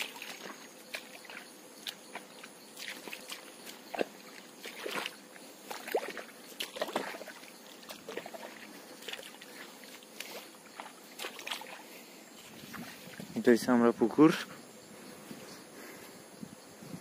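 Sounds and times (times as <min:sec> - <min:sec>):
footsteps through wet grass: 0:00.0 - 0:13.6.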